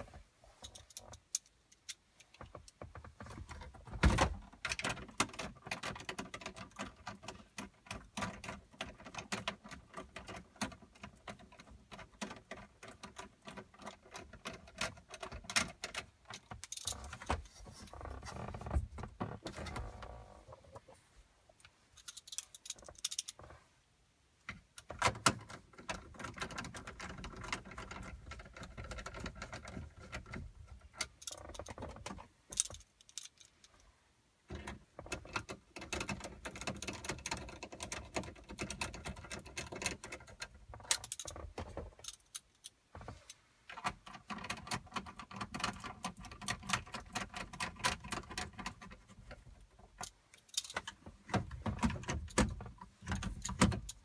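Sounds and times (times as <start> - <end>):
plastic trim and screws rattling: 0.6 - 20.8, 21.6 - 23.6, 24.4 - 33.8, 34.5 - 54.0.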